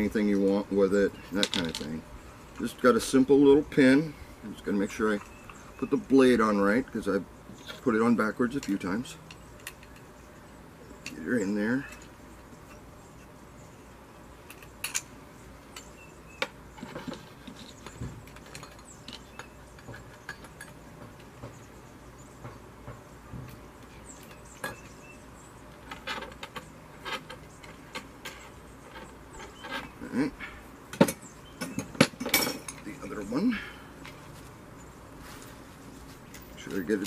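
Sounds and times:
small clicks and metal clinks: 7.6s - 10.1s, 14.4s - 15.1s, 16.7s - 21.6s, 25.7s - 29.9s, 30.9s - 33.1s.

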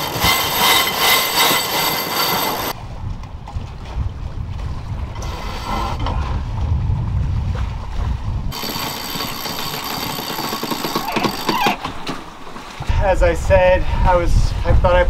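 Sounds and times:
winch whirring and ratchet clicking: 0.0s - 2.8s, 8.6s - 12.2s
wind buffeting microphone: 2.7s - 10.6s, 12.6s - 15.0s.

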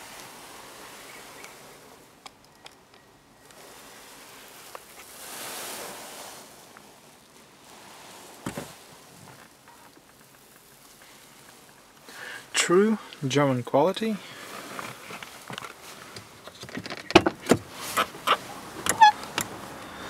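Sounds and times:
camera handling rustle: 14.4s - 19.5s.

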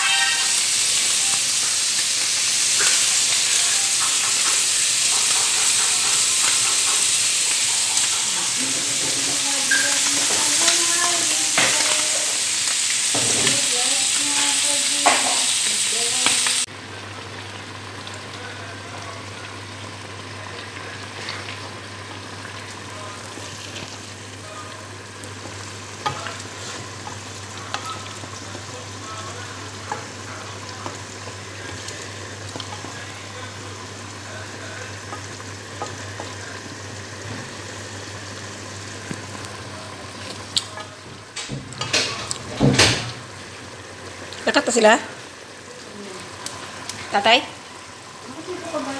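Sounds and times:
stew sizzling in a pan: 0.0s - 48.9s.

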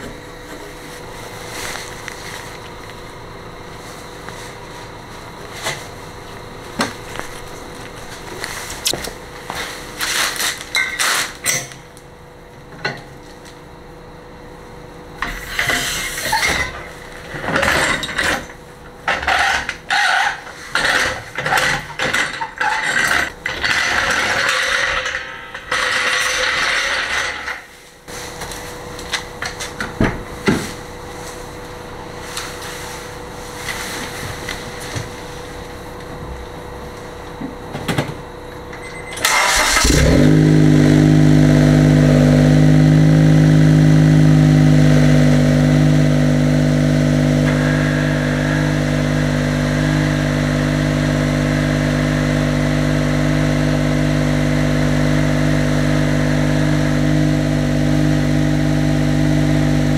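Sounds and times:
tool scraping: 15.2s - 16.9s.

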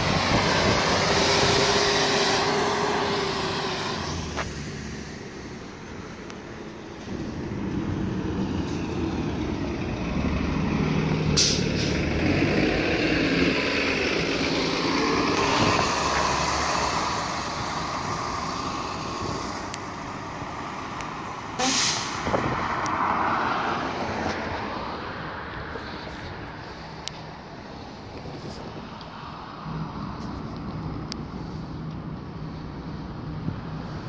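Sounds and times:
bus engine pulling away: 0.0s - 34.0s
air brake hisses: 11.4s - 12.0s, 21.6s - 22.2s.

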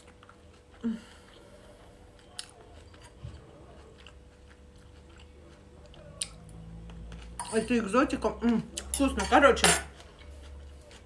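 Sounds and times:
person chewing salad: 0.0s - 7.4s, 9.9s - 11.0s.

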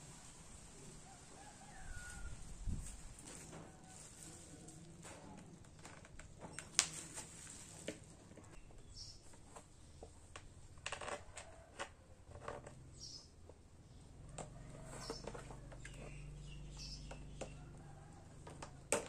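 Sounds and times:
bird chirping: 8.6s - 10.1s, 12.9s - 14.1s, 15.0s - 17.8s.

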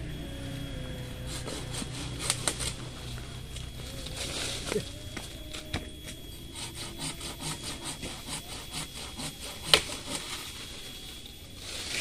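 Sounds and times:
knife sawing branch: 1.2s - 2.8s, 6.5s - 10.7s
branch cracking: 1.7s - 6.1s.

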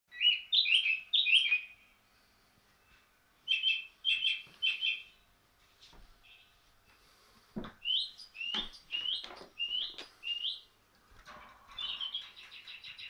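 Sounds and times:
small bird chirping: 0.1s - 2.0s, 3.4s - 5.2s, 6.2s - 6.6s, 7.8s - 10.7s, 11.7s - 13.0s.

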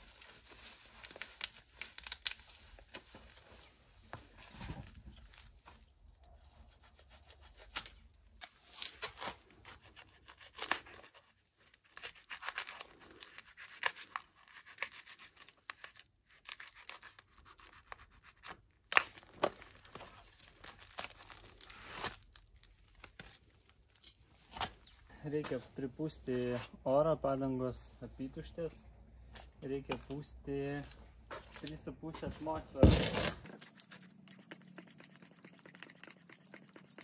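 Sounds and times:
packaging rustling and tearing: 0.0s - 5.7s, 7.7s - 17.9s, 18.9s - 24.0s, 32.8s - 35.6s.

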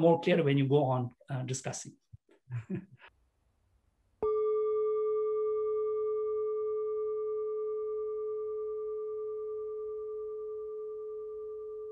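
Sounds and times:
singing bowl ringing: 4.2s - 11.9s.

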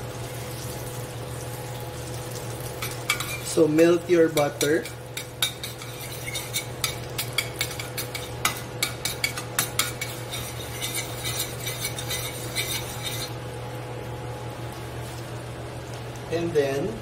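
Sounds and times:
utensil scraping steel pan: 4.4s - 13.4s.

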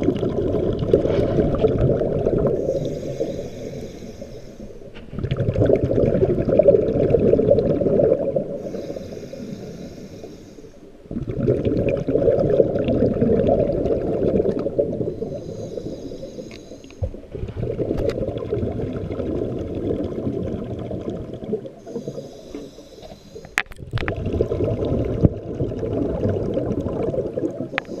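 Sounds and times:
underwater rumble and bubbling: 0.0s - 28.0s
faint high hiss: 2.5s - 5.1s, 8.4s - 11.1s, 14.8s - 17.3s.

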